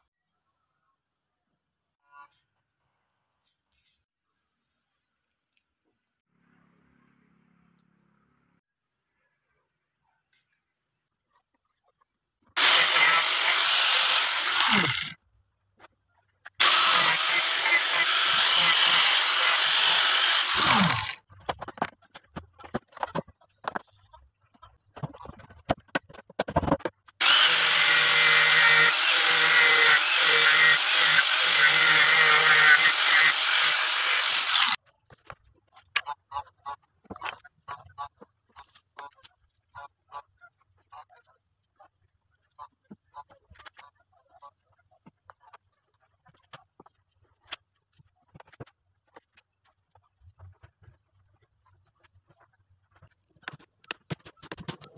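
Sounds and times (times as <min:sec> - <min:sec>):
electric power tool running: 0:12.6 - 0:15.2, 0:16.6 - 0:21.2, 0:27.2 - 0:34.8.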